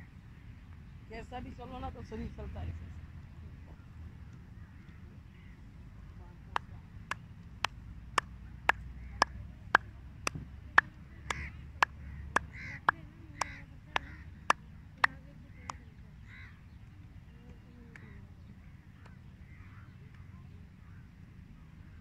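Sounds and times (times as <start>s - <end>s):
sharp evenly spaced clicks: 6.6s - 15.8s.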